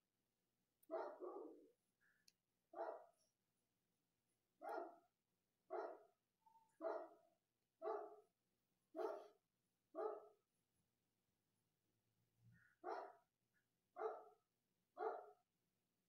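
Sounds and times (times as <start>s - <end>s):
dog barking: 0.8s - 1.8s, 2.8s - 3.2s, 4.6s - 5.0s, 5.7s - 6.1s, 6.7s - 8.3s, 8.9s - 9.4s, 10.0s - 10.4s, 12.7s - 13.2s, 14.0s - 14.4s, 15.0s - 15.4s.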